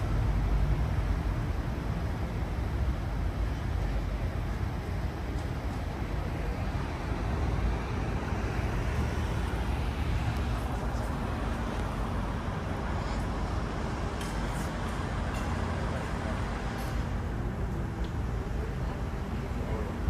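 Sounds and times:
low rumble of road traffic: 0:00.0 - 0:20.0.

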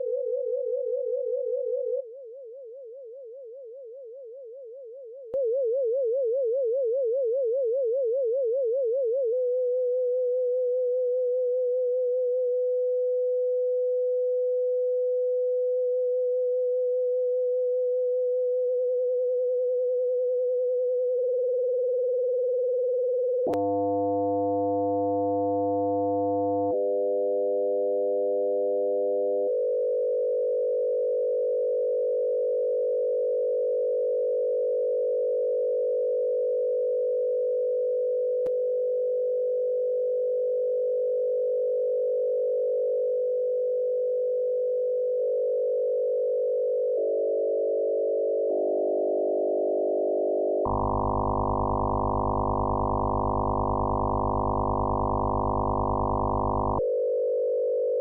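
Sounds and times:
synthesized sine tone: 0:00.0 - 0:11.1, 0:23.4 - 0:30.1, 0:48.2 - 0:56.9.

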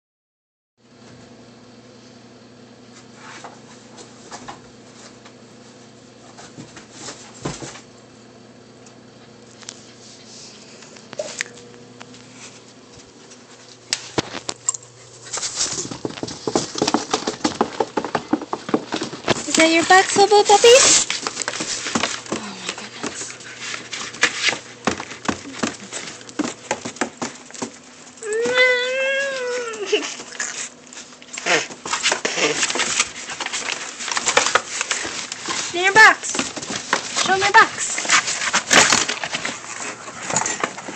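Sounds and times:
steady low hum: 0:01.1 - 0:40.9
puppies scrabbling in a box: 0:13.0 - 0:40.9
scratches and rustles in cardboard box: 0:31.4 - 0:40.9.

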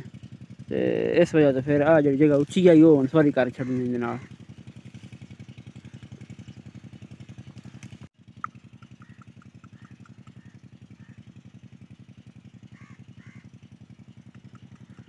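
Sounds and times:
small engine thudding: 0:01.6 - 0:15.0
bird chirps: 0:05.0 - 0:11.8.

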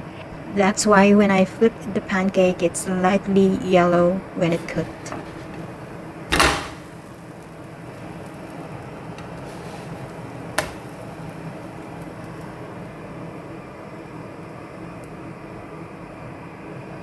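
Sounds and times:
low background noise: 0:00.0 - 0:17.0
spatula scraping pan: 0:04.4 - 0:05.9, 0:09.2 - 0:10.8.

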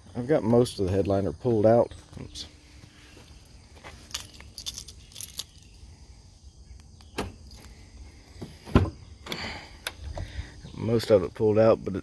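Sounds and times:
keys jingling: 0:04.0 - 0:05.7
thump: 0:08.4 - 0:09.0.

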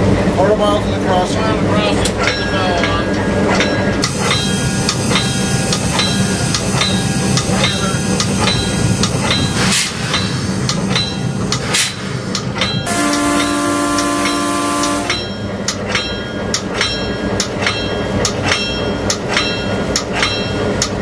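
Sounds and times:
locomotive bell ringing: 0:01.9 - 0:11.6, 0:12.5 - 0:21.0
locomotive horn: 0:12.9 - 0:15.3.

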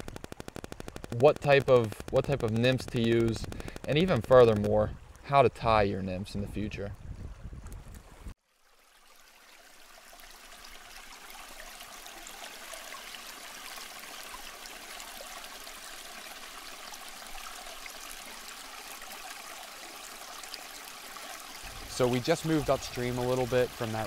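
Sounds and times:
stream water running and trickling: 0:00.0 - 0:24.0.

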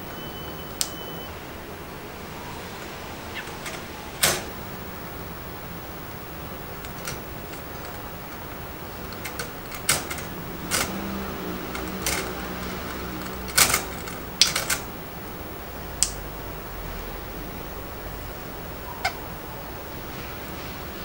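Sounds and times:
beak pecking plastic and wire: 0:05.9 - 0:15.0.

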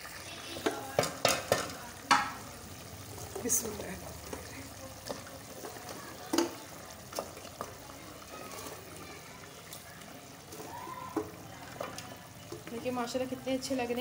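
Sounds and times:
gravy bubbling in a pot: 0:00.0 - 0:14.0
meatballs knocking and plopping: 0:00.5 - 0:02.6, 0:03.3 - 0:07.9, 0:10.5 - 0:13.2.

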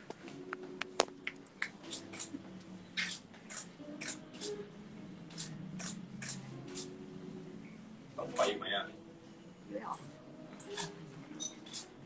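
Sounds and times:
lighter hissing spurts: 0:03.0 - 0:04.6, 0:05.3 - 0:07.0.

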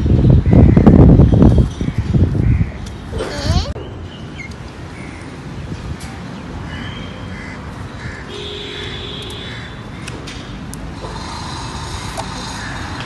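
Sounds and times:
outdoor background noise: 0:00.0 - 0:13.0
crows cawing: 0:06.7 - 0:10.1, 0:12.4 - 0:13.0.

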